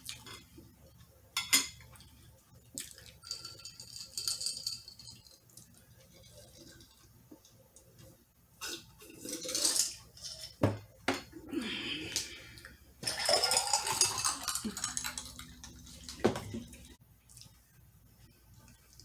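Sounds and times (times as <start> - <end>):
drink pouring into glass: 13.0 - 16.9.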